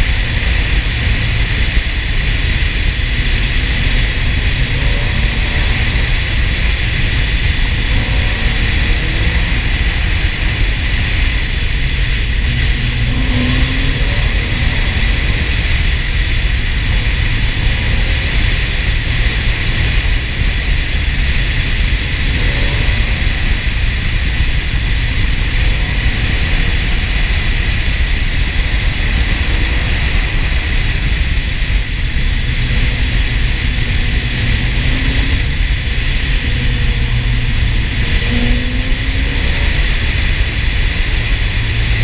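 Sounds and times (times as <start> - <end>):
car engine note: 0.0 - 42.0
wind and road noise: 0.0 - 42.0.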